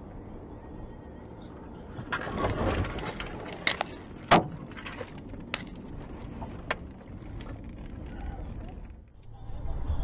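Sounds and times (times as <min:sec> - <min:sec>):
car road noise: 0:00.0 - 0:10.0.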